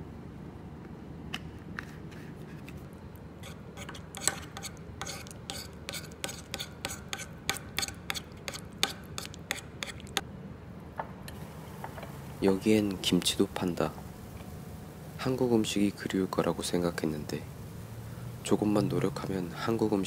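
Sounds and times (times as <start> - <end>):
steady low hum: 0.0 - 20.0
spoon scraping a ceramic bowl: 3.4 - 10.2.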